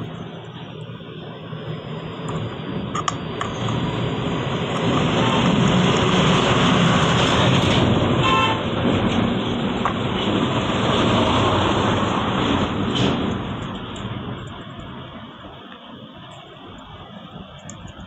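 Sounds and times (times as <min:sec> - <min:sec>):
road traffic passing: 0:00.0 - 0:18.0
car horn toot: 0:08.2 - 0:08.7.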